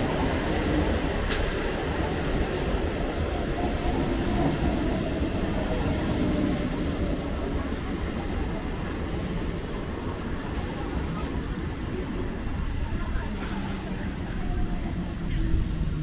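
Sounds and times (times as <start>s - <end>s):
electric train rumbling past: 0.0s - 16.0s.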